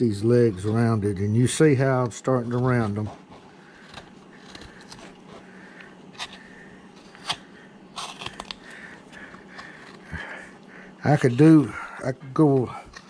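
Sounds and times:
gouge cutting into hard wood: 0:02.9 - 0:05.4.

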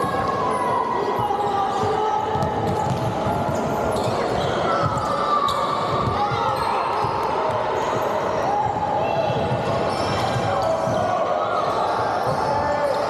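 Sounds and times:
voices echoing in a hall: 0:00.0 - 0:13.0
basketball bouncing on hardwood: 0:02.4 - 0:03.1.

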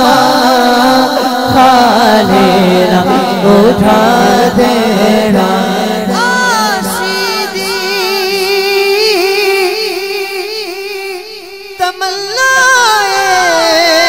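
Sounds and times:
man singing melismatic passage: 0:00.0 - 0:14.0.

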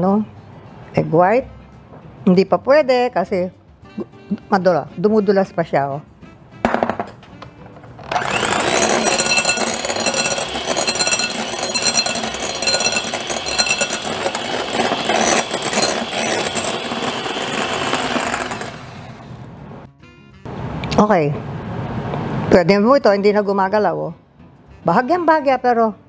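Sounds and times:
electric hand mixer running: 0:08.0 - 0:19.5.

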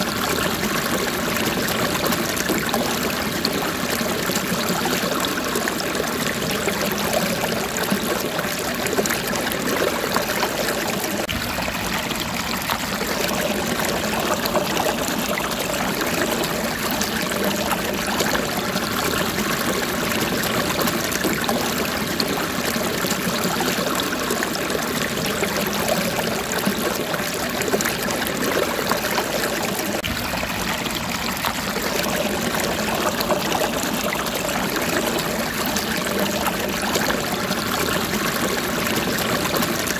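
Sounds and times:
running water: 0:00.0 - 0:39.9.

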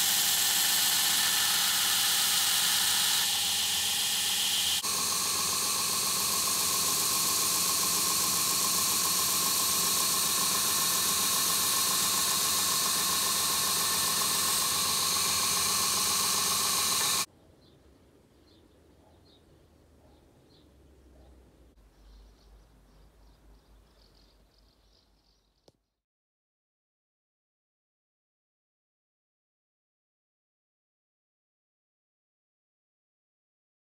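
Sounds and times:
belt grinder grinding hiss: 0:00.0 - 0:17.3.

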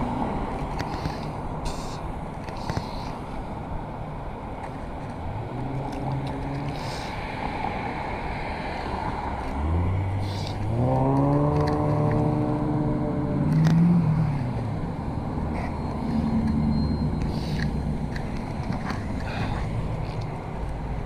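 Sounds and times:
steady road noise: 0:00.0 - 0:21.0
vehicle engine accelerating: 0:09.4 - 0:21.0.

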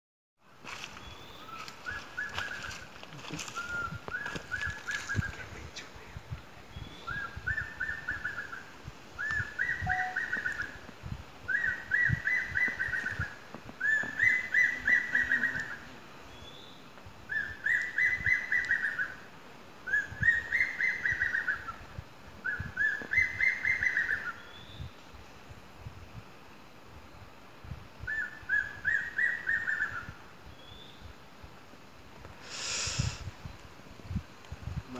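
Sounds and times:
eagle whistled calls: 0:09.2 - 0:10.8, 0:11.5 - 0:19.2, 0:19.9 - 0:21.8, 0:22.4 - 0:24.8, 0:28.0 - 0:31.0.

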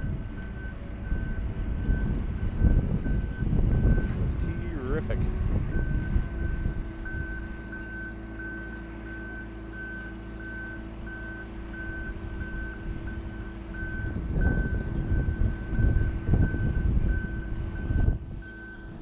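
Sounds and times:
lift engine droning: 0:00.0 - 0:19.0
low rumble: 0:00.0 - 0:19.0
motion alarm beeping: 0:05.8 - 0:19.0.

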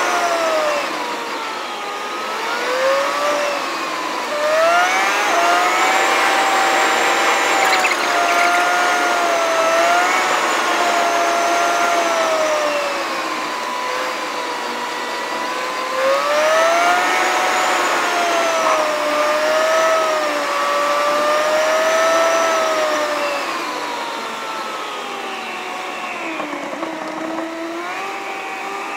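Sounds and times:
whine rising and falling in pitch: 0:04.6 - 0:10.2.

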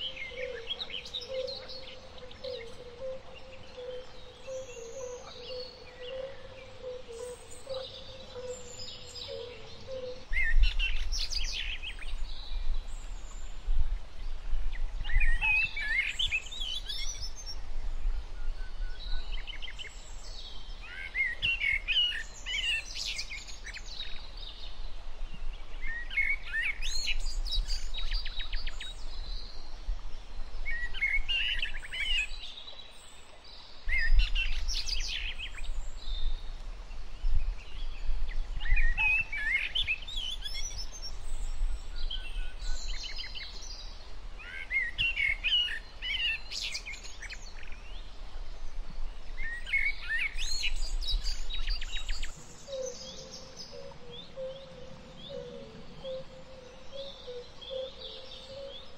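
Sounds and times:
songbird warbling: 0:00.0 - 0:10.6, 0:49.4 - 0:58.9.

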